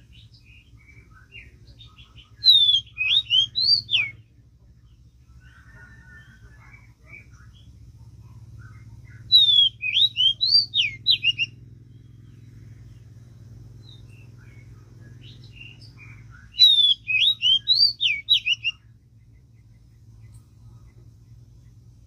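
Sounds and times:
faint bird chirps: 0.0 - 22.0
songbird whistled phrase: 2.4 - 4.2, 9.2 - 11.6, 13.9 - 18.8.

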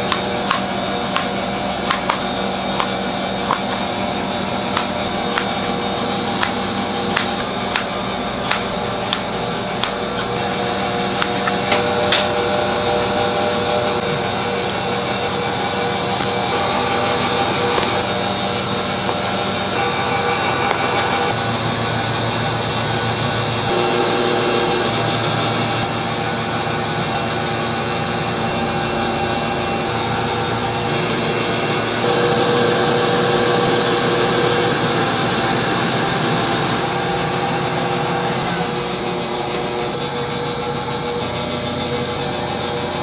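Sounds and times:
kitchen equipment hum: 0.0 - 43.0
knife tapping on cutting board: 6.4 - 7.9.

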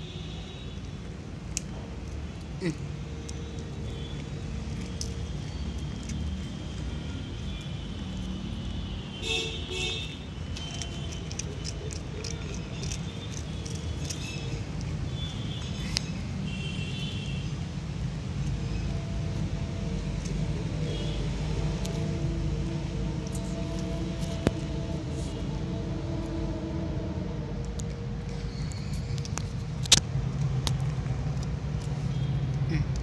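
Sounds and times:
road traffic rumble: 0.0 - 33.0
cat chewing dry biscuits: 0.9 - 8.8, 10.2 - 16.4.

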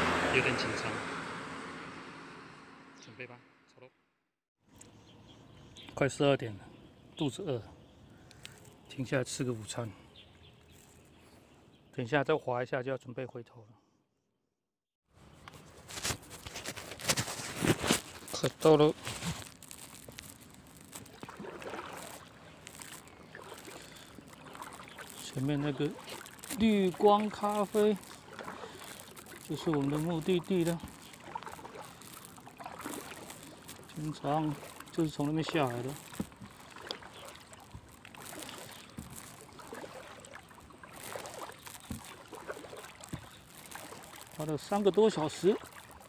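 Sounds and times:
paddle swishing through water: 15.2 - 46.0
water dripping: 18.0 - 46.0.

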